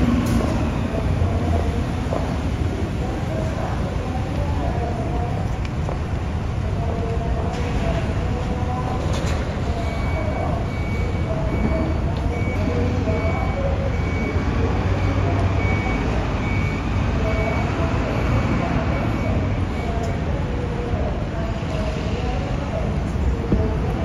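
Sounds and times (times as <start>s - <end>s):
low rumble of train noise: 0.0s - 24.0s
faint high beep: 9.8s - 20.2s.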